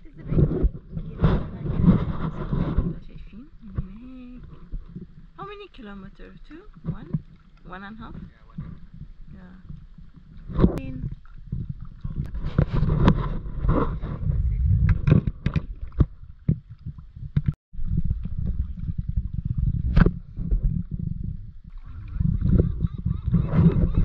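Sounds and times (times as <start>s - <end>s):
water gurgling against boat: 0.0s - 24.0s
wind rumble on microphone: 0.0s - 24.0s
paddle strokes splashing: 3.6s - 14.3s.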